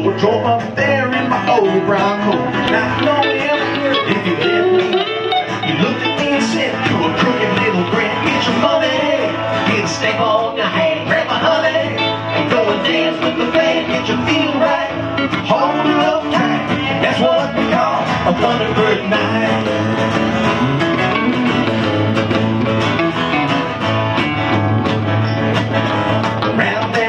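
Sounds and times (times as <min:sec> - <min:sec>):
person singing: 0:00.0 - 0:20.5, 0:26.4 - 0:27.0
acoustic guitar: 0:00.0 - 0:27.0
live band playing country rock: 0:00.0 - 0:27.0.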